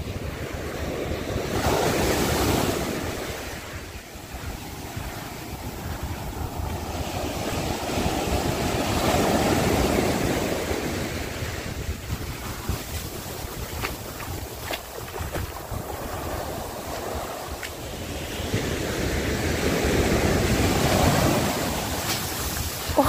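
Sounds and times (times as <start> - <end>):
sea surf on beach: 0.0 - 23.0
wind buffeting microphone: 0.0 - 23.0.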